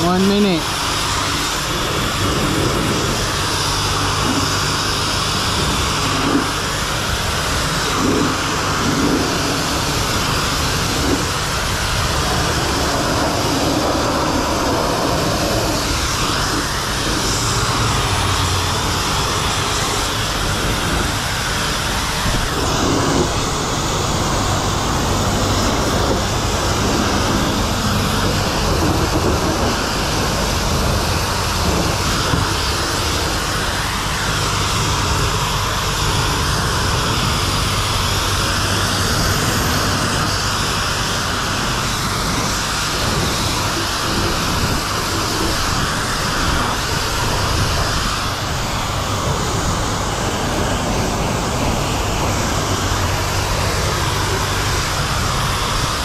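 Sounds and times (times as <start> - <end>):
pressure washer spraying water: 0.0 - 56.0.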